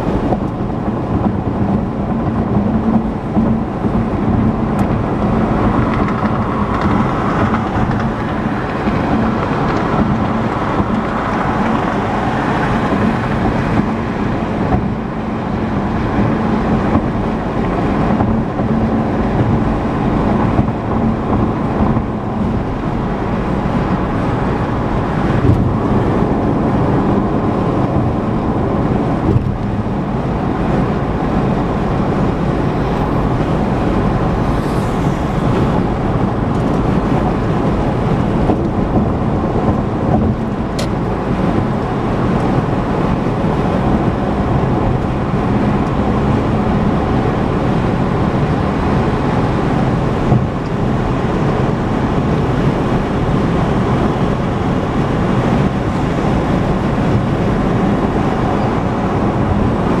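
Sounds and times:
car road and tyre noise: 0.0s - 60.0s.

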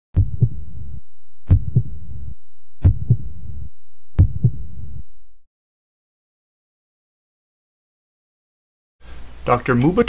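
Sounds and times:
heartbeat thumps: 0.2s - 5.2s
steady low hum: 0.2s - 5.4s.

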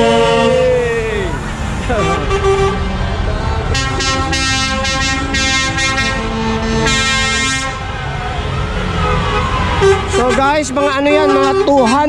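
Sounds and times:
road noise: 0.0s - 12.0s
truck engines rumbling: 0.0s - 12.0s
lorry air horn blasts: 3.8s - 7.8s.

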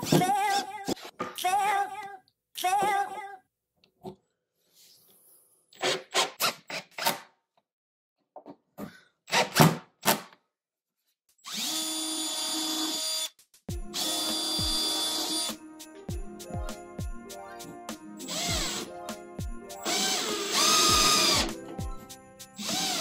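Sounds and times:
cordless drill motor running: 11.4s - 13.3s, 18.3s - 18.8s, 19.9s - 21.5s, 22.6s - 23.0s.

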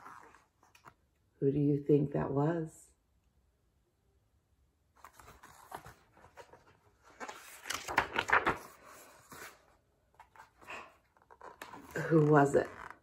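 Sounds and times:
book pages flipping: 0.0s - 1.0s, 5.0s - 13.0s.

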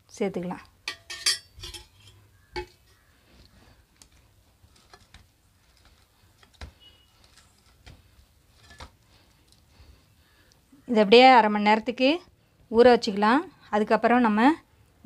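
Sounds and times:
hand kneading dough: 3.0s - 9.8s.

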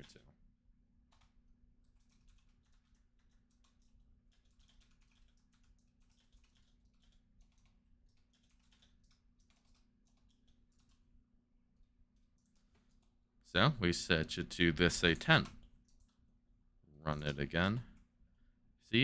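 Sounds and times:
typing on computer keyboard: 0.0s - 0.2s, 1.1s - 11.1s, 12.1s - 13.2s, 15.1s - 16.2s.

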